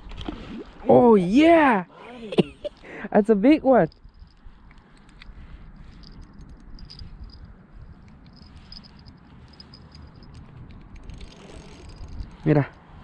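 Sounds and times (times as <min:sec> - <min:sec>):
fishing reel clicking: 0:08.1 - 0:12.4.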